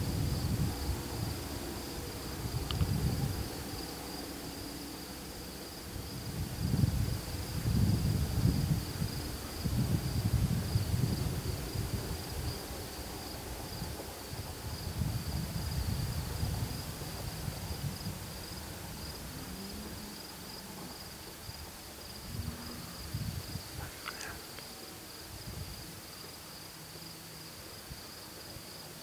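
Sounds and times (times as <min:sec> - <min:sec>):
low rumbling: 0:00.0 - 0:24.5
crickets chirping: 0:00.0 - 0:29.0.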